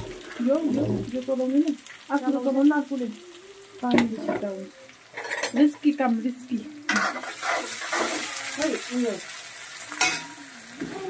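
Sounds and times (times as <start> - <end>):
oil sizzling: 0.0 - 11.0
metal spoon scraping pots: 5.1 - 5.8, 6.9 - 8.2.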